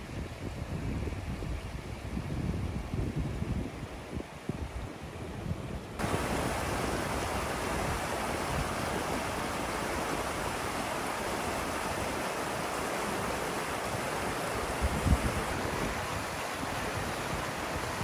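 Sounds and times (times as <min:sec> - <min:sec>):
stream rushing over rocks: 0:06.0 - 0:18.0.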